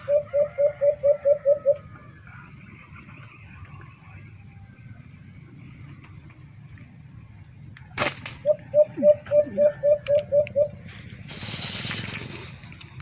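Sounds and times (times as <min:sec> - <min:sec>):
dove cooing: 0:00.0 - 0:02.0, 0:08.4 - 0:12.5
rustling: 0:10.8 - 0:13.0.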